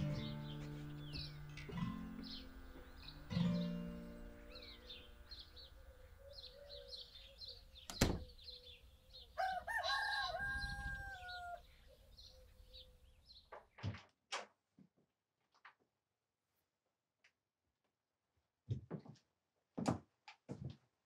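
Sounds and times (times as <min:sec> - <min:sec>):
songbirds chirping: 0:00.0 - 0:13.9
rooster crowing: 0:09.4 - 0:11.7.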